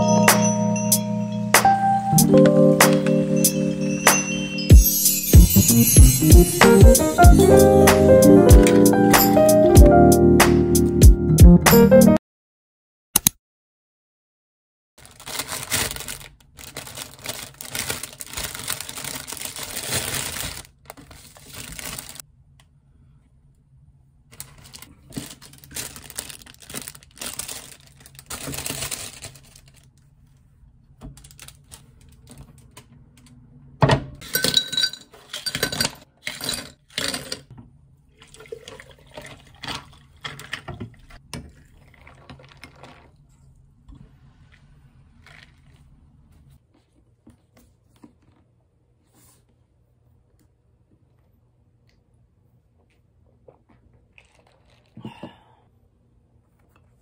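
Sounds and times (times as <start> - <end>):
plastic bags rustling: 15.0 - 22.2, 24.3 - 30.0, 31.1 - 32.4
ice cubes clinking into a glass: 34.2 - 37.5.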